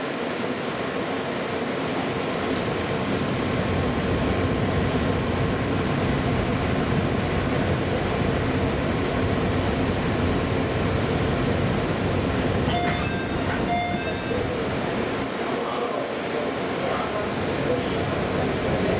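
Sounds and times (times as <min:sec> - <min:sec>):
train wheels rumbling: 0:02.3 - 0:18.9.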